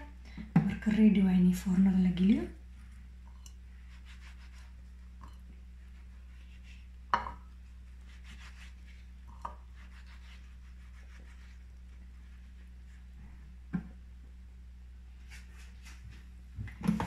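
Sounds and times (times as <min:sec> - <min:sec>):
low hum: 0:00.0 - 0:17.0
hands rubbing over food: 0:03.8 - 0:05.1, 0:05.8 - 0:06.9, 0:07.7 - 0:13.1, 0:15.2 - 0:16.3.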